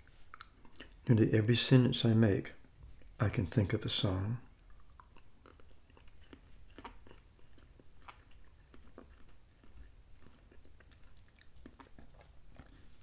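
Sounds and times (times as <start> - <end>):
wet chewing clicks: 0.3 - 1.1, 4.5 - 13.0.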